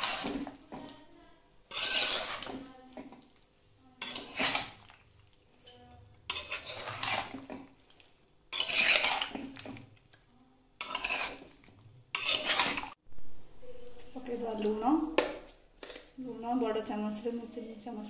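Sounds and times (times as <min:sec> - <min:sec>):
metal spoon scraping a pan: 0:00.0 - 0:01.0, 0:01.7 - 0:03.2, 0:04.0 - 0:10.2, 0:10.8 - 0:13.0.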